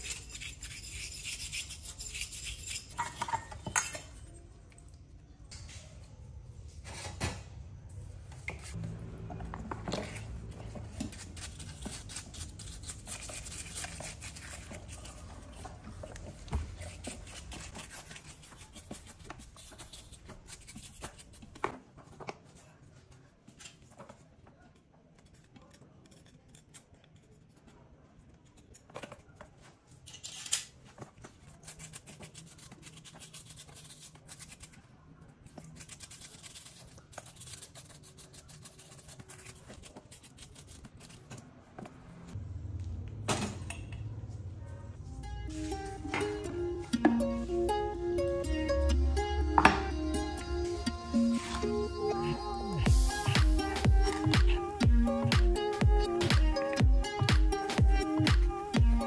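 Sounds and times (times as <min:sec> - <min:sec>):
bristle brush scrubbing: 0:10.1 - 0:21.4, 0:35.6 - 0:41.3.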